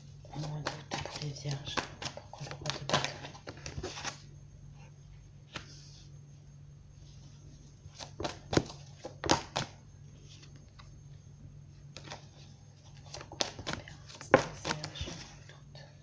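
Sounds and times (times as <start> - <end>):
steady low hum: 0.0 - 16.0
cards being shuffled by hand: 0.2 - 4.3, 7.1 - 10.9, 11.9 - 15.5.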